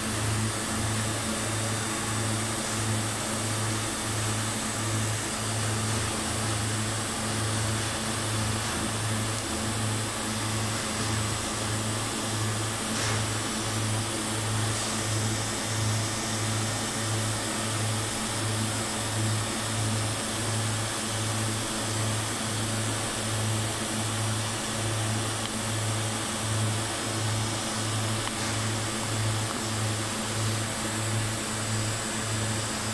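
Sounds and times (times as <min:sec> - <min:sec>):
welding arc hiss: 0:00.0 - 0:18.4, 0:26.8 - 0:32.9
pulsing welding arc hum: 0:00.0 - 0:32.9.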